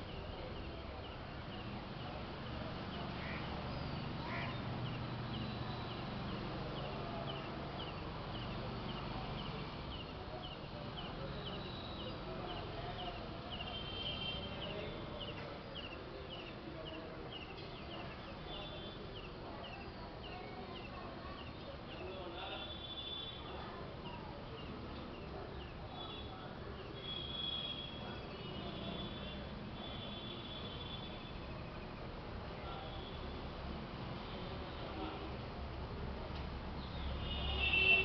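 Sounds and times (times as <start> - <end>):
low background murmur: 0.0 - 38.0.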